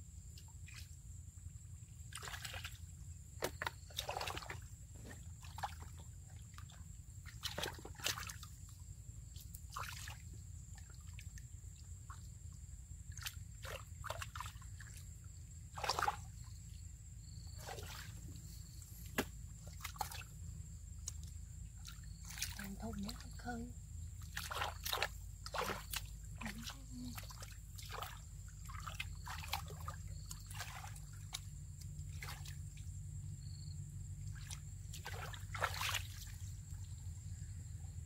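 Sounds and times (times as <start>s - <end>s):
hands splashing in muddy water: 2.1s - 8.7s, 9.3s - 12.3s, 13.1s - 15.1s, 15.7s - 16.6s, 17.5s - 23.5s, 24.2s - 32.9s, 34.3s - 36.8s.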